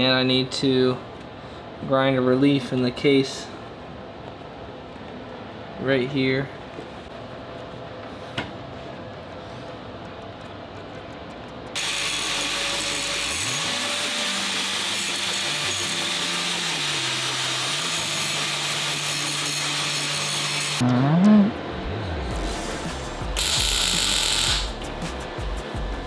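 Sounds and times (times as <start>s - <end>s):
grinder grinding metal: 11.8s - 20.8s, 23.4s - 24.8s.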